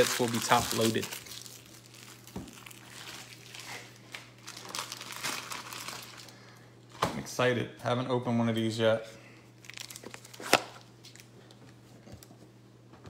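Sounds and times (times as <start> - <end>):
plastic wrapping crinkling: 0.0 - 6.4, 9.6 - 11.3.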